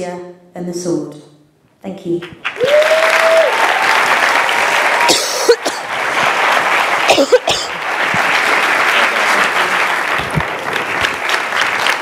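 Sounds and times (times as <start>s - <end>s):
audience applauding: 2.4s - 12.0s.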